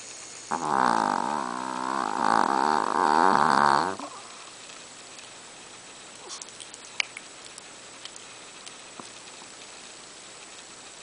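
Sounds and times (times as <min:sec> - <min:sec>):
dog snoring: 0:00.5 - 0:04.4.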